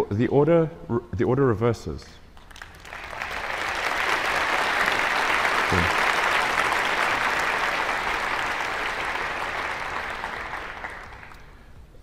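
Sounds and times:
audience applauding: 2.4 - 11.6.

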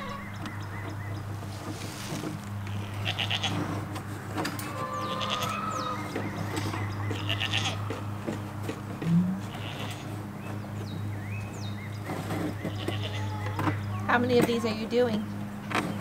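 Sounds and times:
goats bleating: 0.0 - 0.3, 2.6 - 3.8, 4.6 - 6.4, 7.0 - 8.2, 9.4 - 10.2, 12.6 - 14.1.

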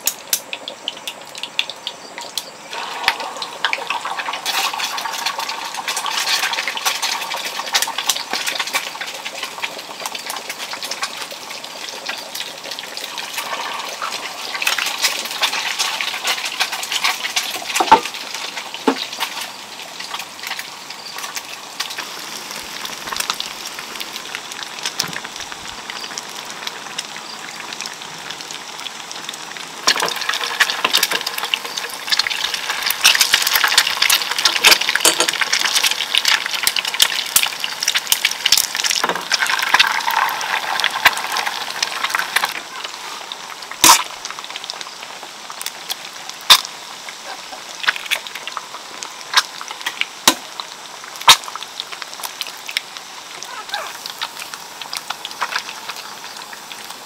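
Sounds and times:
eggs sizzling in hot oil: 0.0 - 57.0
pot being stirred: 2.7 - 11.3, 12.3 - 22.0, 29.9 - 44.1.

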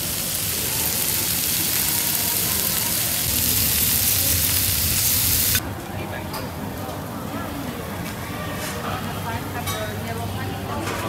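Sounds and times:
meat and rice sizzling on a hot plate: 0.0 - 5.6.

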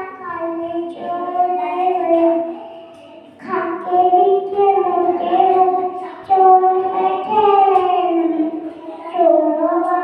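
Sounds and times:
girl singing into microphone: 0.0 - 10.0.

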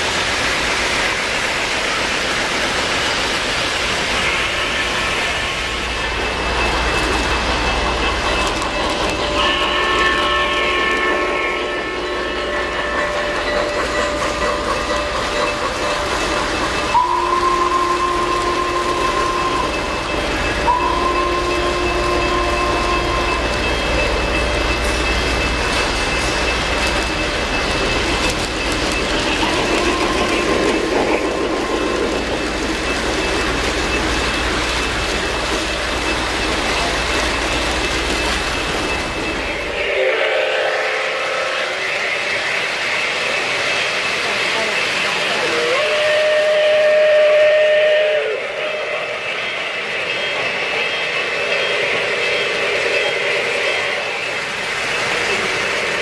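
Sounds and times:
model trains rumbling: 0.0 - 56.0
train whistle blasts: 9.3 - 13.4, 16.9 - 23.7, 29.4 - 32.0, 39.6 - 42.1, 45.4 - 49.2.

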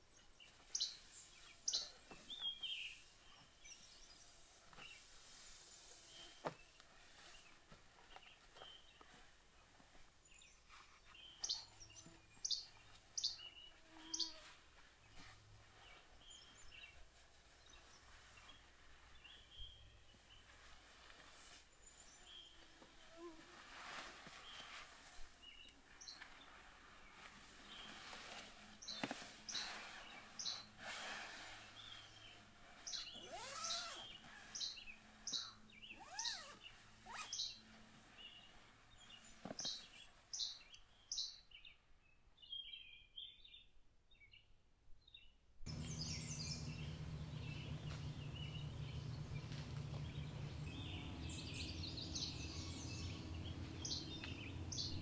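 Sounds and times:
birds chirping: 0.0 - 5.1, 6.0 - 21.0, 25.4 - 41.7, 45.7 - 55.0
low hum: 45.7 - 55.0
lower swooping bird calls: 45.7 - 55.0.

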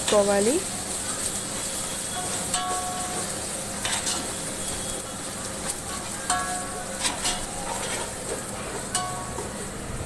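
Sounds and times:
onions sizzling in ghee: 0.0 - 10.0
spoon scraping a pot: 7.0 - 8.2.

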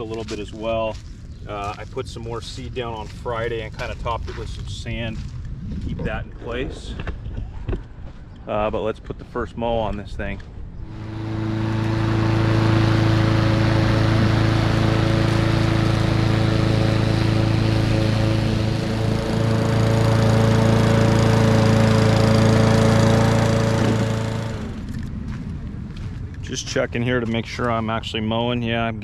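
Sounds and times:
lawn mower engine running: 10.8 - 25.1.

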